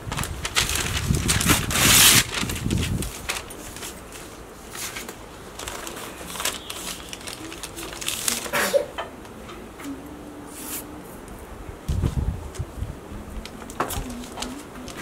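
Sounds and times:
newspaper rustling and crinkling: 0:00.0 - 0:08.9, 0:13.4 - 0:15.0.

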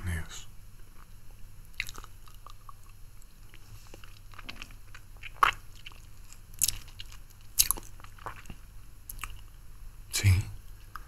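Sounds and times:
wet mouth clicks: 0:01.8 - 0:03.6.

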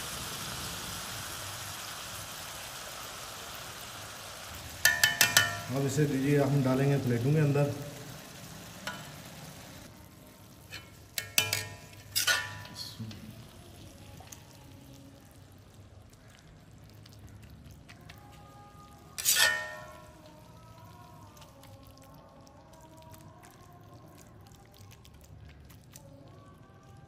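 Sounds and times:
ladle clinking on metal: 0:04.8 - 0:05.8, 0:10.7 - 0:13.2, 0:19.2 - 0:20.2
ladle scraping food: 0:10.6 - 0:12.8, 0:19.0 - 0:20.2.

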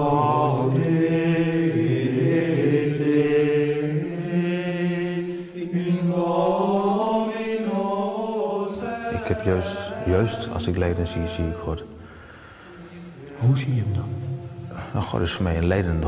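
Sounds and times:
men singing chant: 0:00.0 - 0:12.1.

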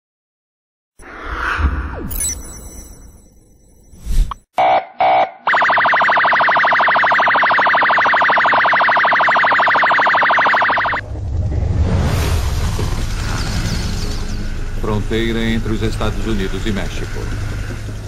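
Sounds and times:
rapidly pulsing alarm buzz: 0:04.6 - 0:11.0.

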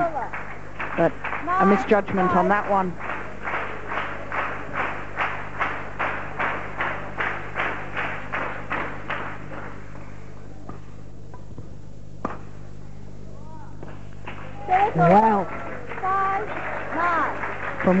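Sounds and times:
spectators clapping in unison: 0:00.0 - 0:09.8, 0:14.2 - 0:18.0.

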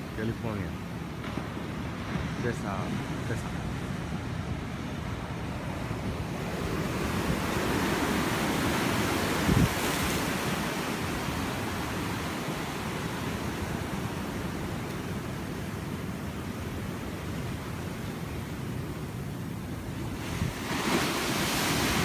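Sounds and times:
ocean surf breaking: 0:00.0 - 0:22.0
wind on microphone: 0:01.4 - 0:12.8, 0:20.0 - 0:22.0.

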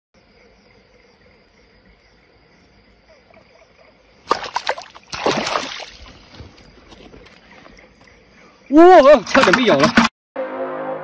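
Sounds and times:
insect chirring: 0:00.2 - 0:09.3
eel thrashing in water: 0:04.2 - 0:06.3
loud splashing in water: 0:04.3 - 0:06.2.

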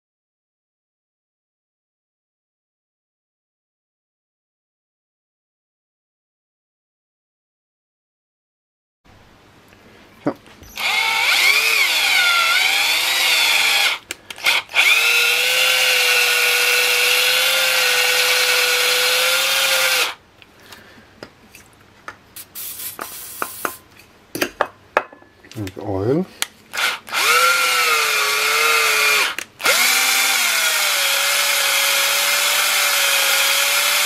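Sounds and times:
cordless drill motor whining: 0:10.6 - 0:20.2, 0:26.7 - 0:34.0.

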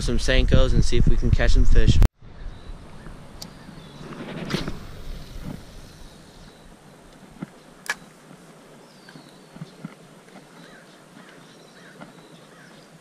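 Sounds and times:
faint outdoor background: 0:00.0 - 0:13.0
fishing rod swishing rustle: 0:03.1 - 0:08.5.

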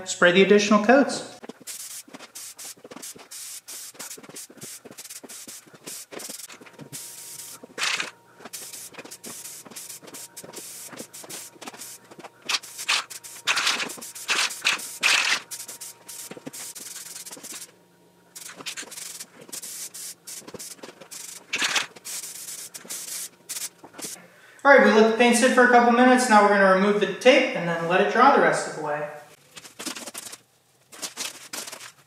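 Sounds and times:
spray paint can hissing: 0:01.5 - 0:17.7, 0:18.4 - 0:24.2.

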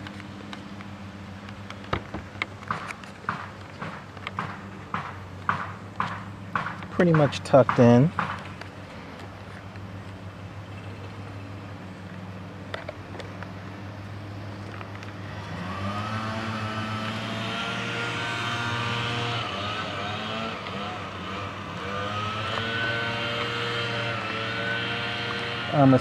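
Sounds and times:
motor engine running: 0:00.0 - 0:26.0.

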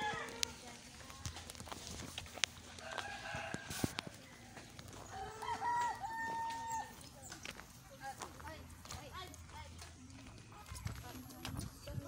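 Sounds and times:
rooster crowing: 0:00.0 - 0:00.5, 0:02.8 - 0:04.1, 0:05.1 - 0:07.0.

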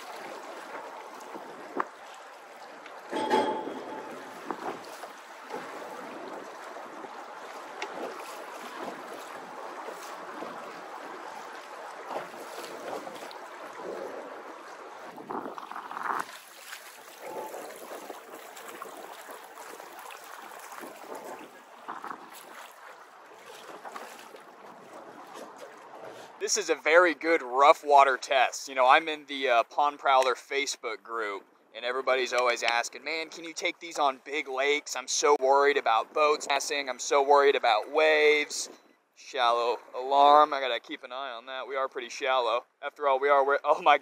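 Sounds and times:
water slapping against boat hull: 0:00.0 - 0:26.4
wind on microphone: 0:03.1 - 0:07.2, 0:12.2 - 0:20.0, 0:20.7 - 0:22.6.

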